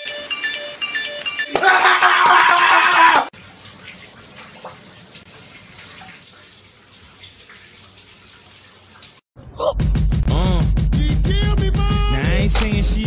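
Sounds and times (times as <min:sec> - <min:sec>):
loud music with singing: 0:10.3 - 0:13.0.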